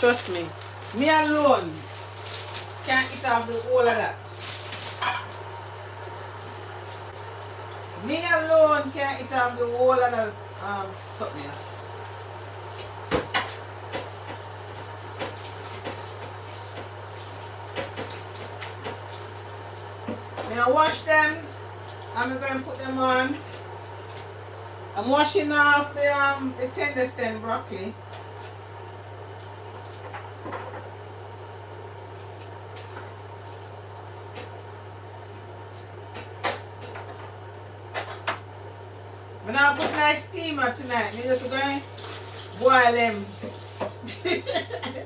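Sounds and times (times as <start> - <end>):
kitchen knocks and clatters: 4.9 - 5.3
water running from a tap: 40.9 - 44.8.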